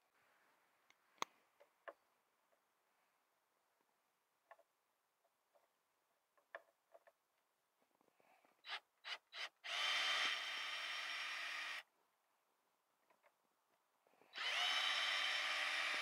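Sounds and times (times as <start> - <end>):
cordless drill motor whine: 9.1 - 11.8, 14.3 - 16.0
drill trigger blips: 14.4 - 16.0.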